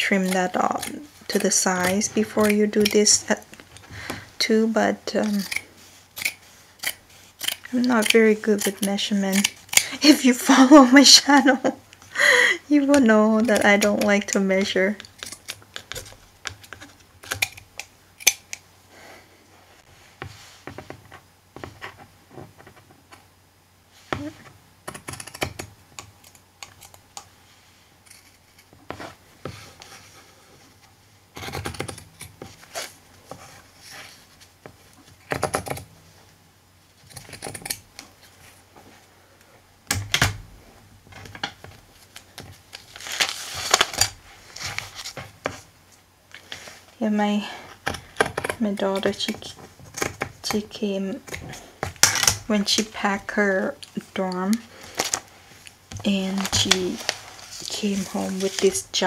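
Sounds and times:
scissors snipping fabric: 0.0s - 3.2s, 5.2s - 5.6s, 6.2s - 10.0s
cloth and paper rustling: 41.8s - 45.7s, 52.5s - 59.0s.

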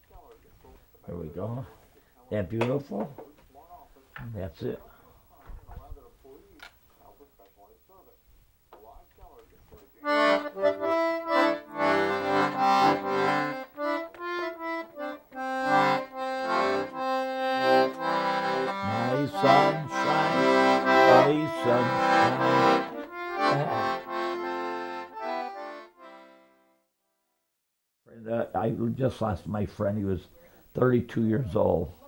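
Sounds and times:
accordion playing a tune: 10.0s - 26.7s.

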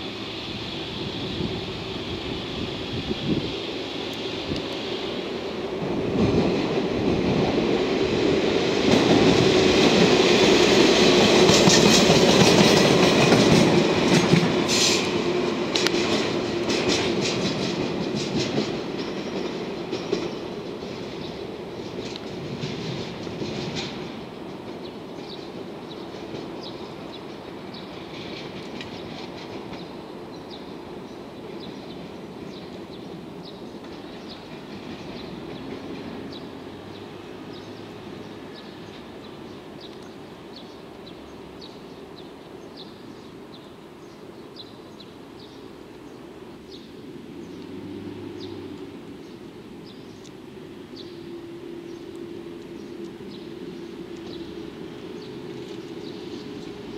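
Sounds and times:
diesel locomotive engine running: 0.0s - 18.8s.

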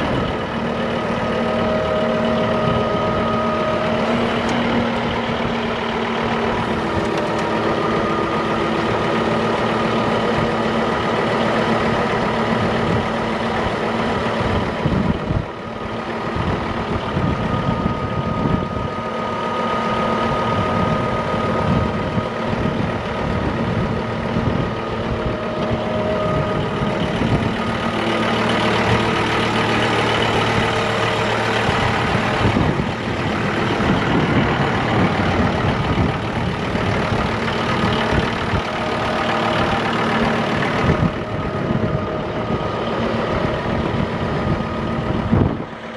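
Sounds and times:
tractor diesel engine idling: 0.0s - 45.9s.

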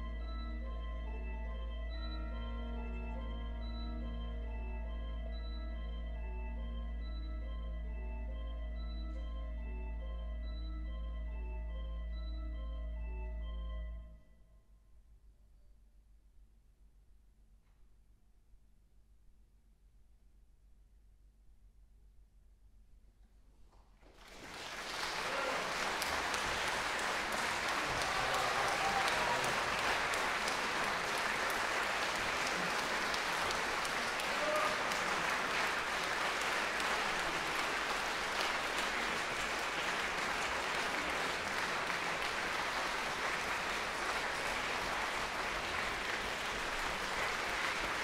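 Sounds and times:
audience applauding: 24.0s - 48.0s.

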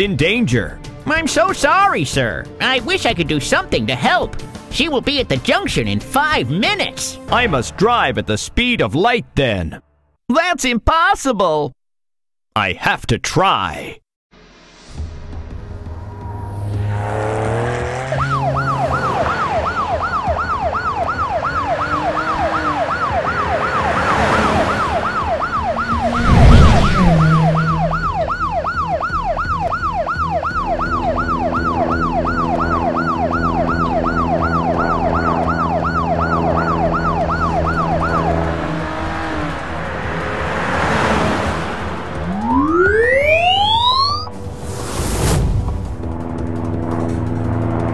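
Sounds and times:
cartoon police siren yelping: 17.9s - 39.9s, 42.1s - 44.4s
loud whoosh with deep rumble: 25.4s - 29.6s
steady low drone: 41.7s - 47.9s.

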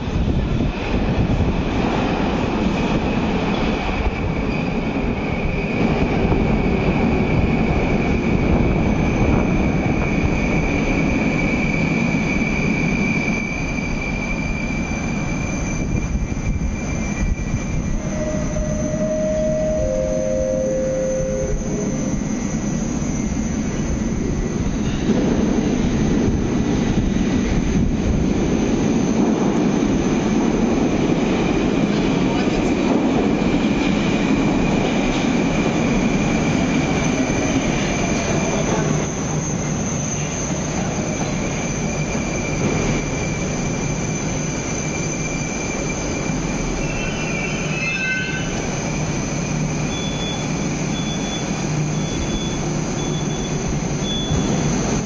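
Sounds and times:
metro train rumble: 0.0s - 55.0s
high whine: 17.1s - 24.8s
short falling tones: 18.0s - 23.4s.

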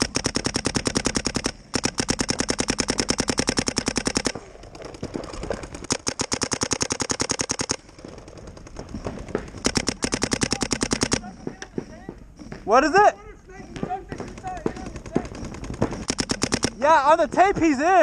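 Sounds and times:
paintball marker rapid firing: 0.0s - 12.8s, 13.6s - 17.2s
faint scattered marker shots: 0.0s - 13.0s, 13.6s - 17.2s.

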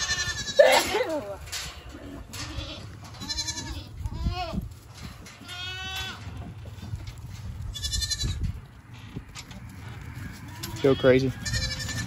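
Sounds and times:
goats bleating: 0.0s - 4.7s, 5.3s - 6.6s, 7.6s - 8.6s, 10.2s - 12.0s.

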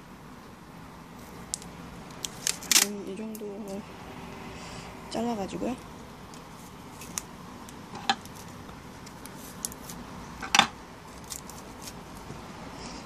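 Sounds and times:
adhesive tape crackling off roll: 1.5s - 3.8s, 6.3s - 10.0s, 11.1s - 12.2s.

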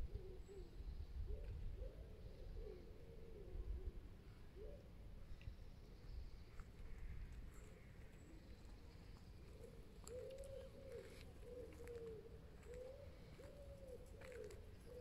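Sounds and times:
pigeon cooing: 0.0s - 4.0s, 9.5s - 15.0s.

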